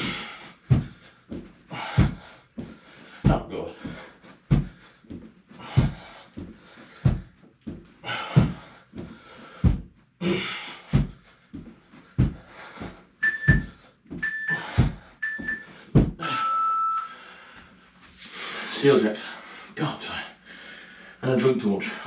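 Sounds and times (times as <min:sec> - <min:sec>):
hard breathy exhalations: 0:00.0 - 0:07.4, 0:08.0 - 0:21.2
feet thudding on floor: 0:00.0 - 0:10.0, 0:10.8 - 0:16.3
interval timer beeps: 0:13.2 - 0:17.2.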